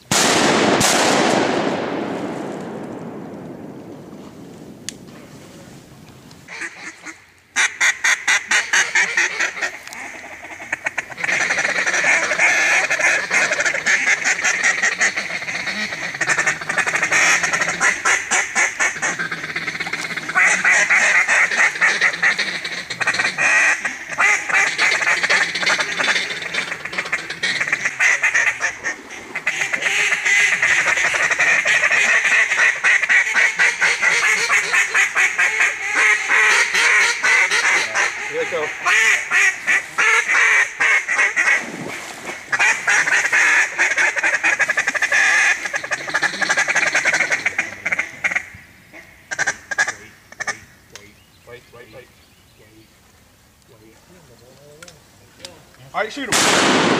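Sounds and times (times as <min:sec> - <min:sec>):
duck call quacking: 0:06.5 - 0:41.7, 0:42.5 - 0:50.7.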